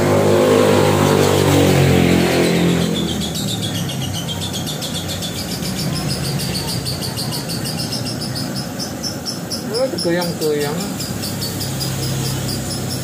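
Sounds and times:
vehicle engine passing: 0.0s - 13.0s
cricket trilling: 2.7s - 13.0s.

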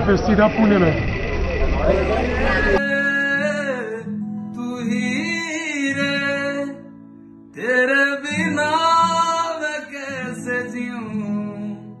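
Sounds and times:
guitar: 0.0s - 12.0s
man singing slow song: 2.8s - 12.0s.

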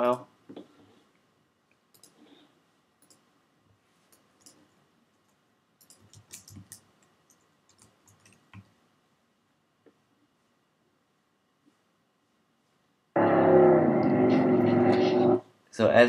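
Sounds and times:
computer mouse and keyboard clicks: 1.9s - 2.3s, 3.0s - 3.3s, 4.0s - 8.7s.

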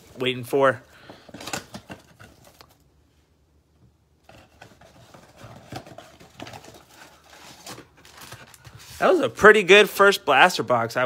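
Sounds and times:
cardboard box and foil packs handled: 0.0s - 2.9s, 4.2s - 9.5s.

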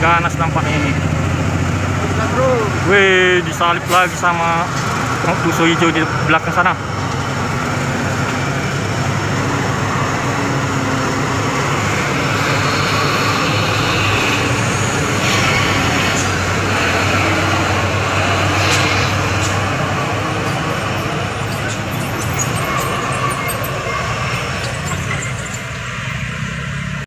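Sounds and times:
diesel truck engines droning: 0.0s - 27.0s
tyre and road noise: 0.0s - 27.0s.

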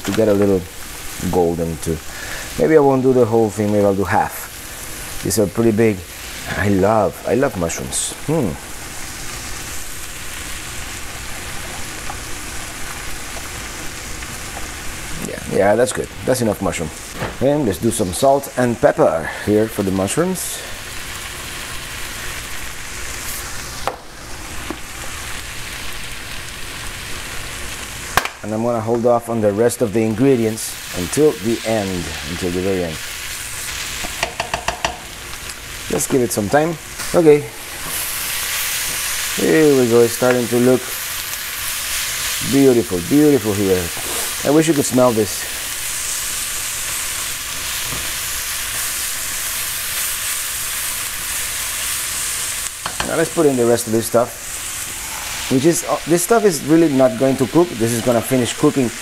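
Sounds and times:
vegetables sizzling in a frying pan: 0.0s - 59.0s.

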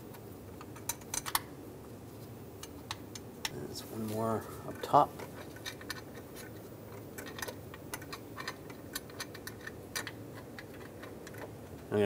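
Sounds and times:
bolt clicking and scraping: 0.1s - 1.5s, 4.7s - 11.9s.

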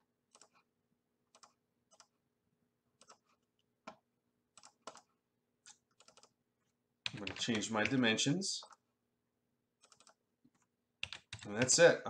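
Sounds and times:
computer mouse clicks: 0.3s - 0.6s, 1.3s - 2.1s, 3.0s - 4.0s, 4.6s - 6.3s, 9.8s - 11.8s.

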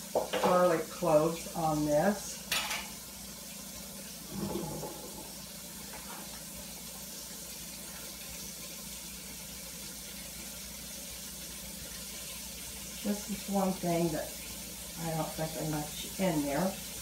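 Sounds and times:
steak sizzling in a frying pan: 0.0s - 17.0s.

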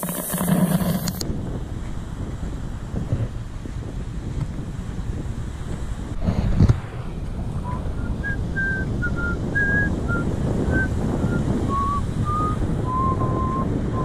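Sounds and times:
wind rumble on microphone: 0.0s - 14.0s
person whistling a tune: 7.6s - 14.0s.

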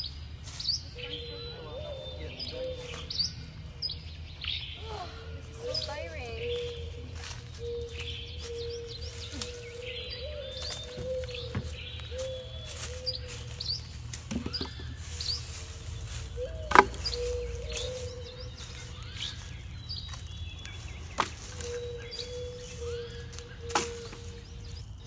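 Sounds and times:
birds chirping: 0.0s - 25.0s
low outdoor rumble: 0.0s - 25.0s
log knocking on woodpile: 10.9s - 11.8s, 14.1s - 15.0s, 16.6s - 17.1s.

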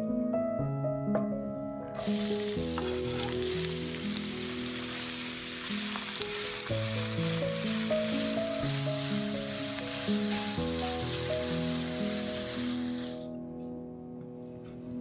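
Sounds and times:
background music: 0.0s - 15.0s
onion sizzling in hot oil: 2.0s - 13.3s.

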